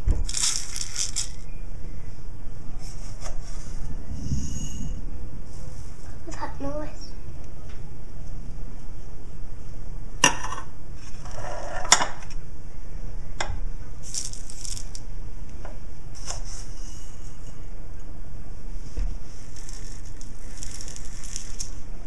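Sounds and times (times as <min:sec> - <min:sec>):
low hum: 0:00.0 - 0:22.0
sprinkles rattling: 0:00.2 - 0:01.5, 0:14.0 - 0:15.0, 0:19.4 - 0:21.9.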